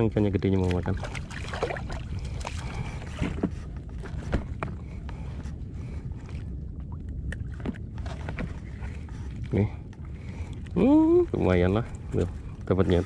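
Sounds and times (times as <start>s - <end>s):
sea water lapping: 0.0s - 13.0s
small splashes: 0.6s - 3.2s.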